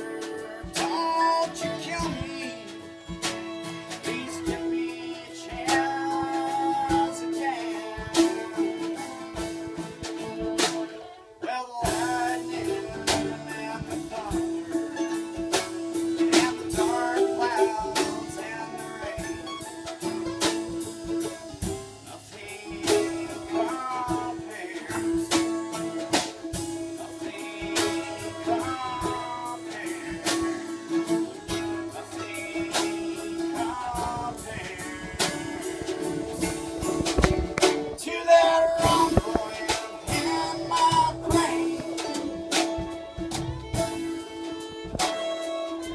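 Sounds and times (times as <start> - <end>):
acoustic guitar: 0.0 - 45.9
fiddle: 0.0 - 45.9
mandolin: 0.0 - 45.9
sharp drum hits: 11.9 - 38.1, 38.7 - 45.9.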